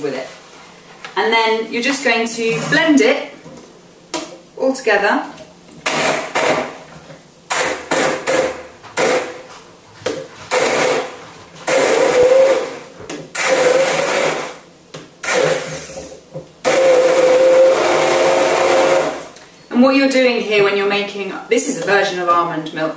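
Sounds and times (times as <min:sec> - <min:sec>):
stick blender running: 0:05.8 - 0:06.8, 0:07.5 - 0:09.4, 0:10.5 - 0:14.6, 0:15.2 - 0:19.4.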